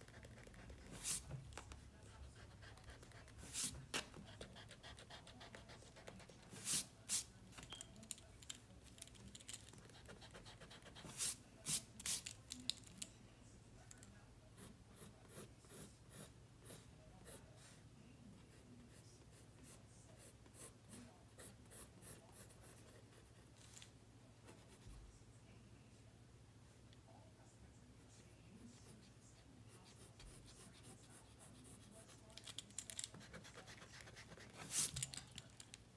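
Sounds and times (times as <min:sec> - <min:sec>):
pencil scratching on paper: 0:00.0 - 0:07.3, 0:09.8 - 0:11.9, 0:14.6 - 0:17.8, 0:18.4 - 0:23.6, 0:28.8 - 0:32.3, 0:33.0 - 0:35.1.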